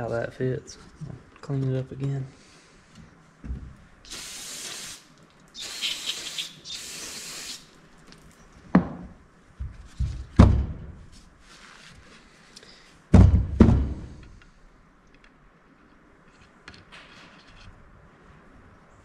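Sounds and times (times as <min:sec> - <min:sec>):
aerosol can spraying: 0:04.1 - 0:07.8.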